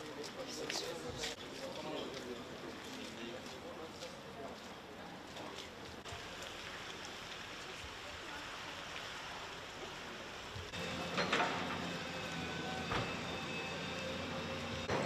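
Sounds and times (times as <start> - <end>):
distant traffic hiss: 6.2 - 15.0
vehicle engine humming: 10.7 - 15.0.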